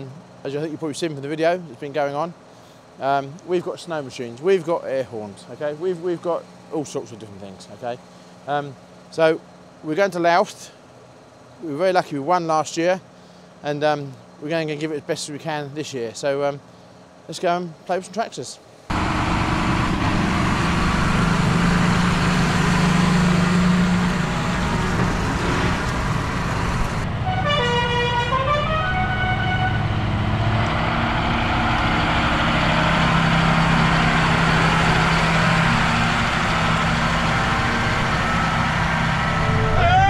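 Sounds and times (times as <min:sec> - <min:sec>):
tractor engines driving past: 0:18.7 - 0:40.0
musical air horn: 0:27.1 - 0:30.1, 0:37.3 - 0:40.0.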